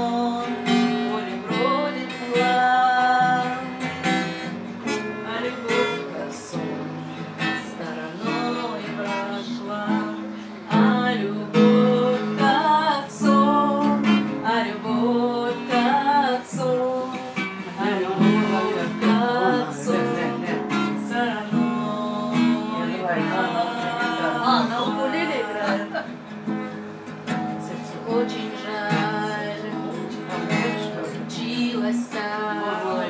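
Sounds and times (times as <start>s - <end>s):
woman singing: 0.0s - 26.3s, 27.3s - 33.0s
acoustic guitar strumming: 0.0s - 33.0s.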